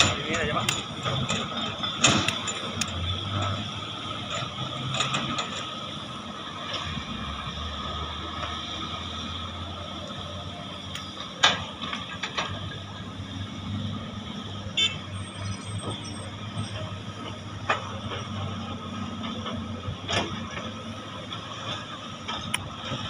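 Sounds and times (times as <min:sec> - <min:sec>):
excavator diesel engines droning: 0:00.0 - 0:23.0.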